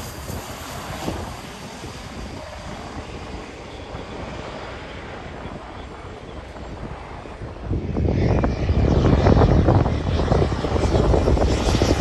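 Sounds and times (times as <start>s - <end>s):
jet engine rumble: 0.0s - 12.0s
wind buffeting microphone: 0.0s - 12.0s.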